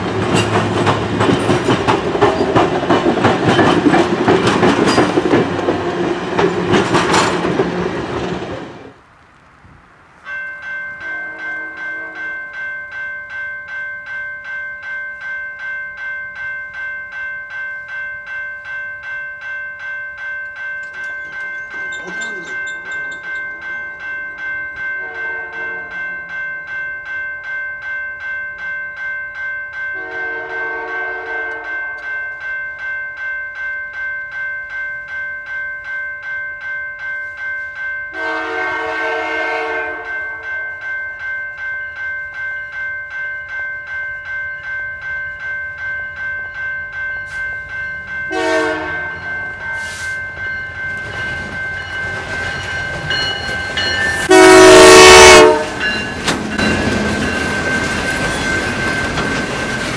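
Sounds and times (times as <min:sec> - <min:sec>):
train noise: 0:00.0 - 0:59.9
level-crossing bell ringing: 0:10.2 - 0:59.9
locomotive horn blasts: 0:11.0 - 0:12.4, 0:25.0 - 0:26.1, 0:30.0 - 0:31.9, 0:38.1 - 0:40.6, 0:48.3 - 0:49.3, 0:54.2 - 0:55.9.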